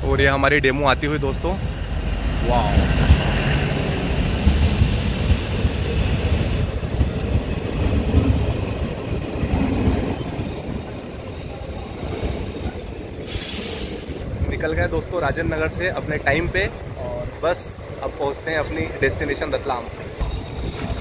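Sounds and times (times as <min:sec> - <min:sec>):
train rumbling on rails: 0:00.0 - 0:21.0
high wheel squeal: 0:09.7 - 0:14.2.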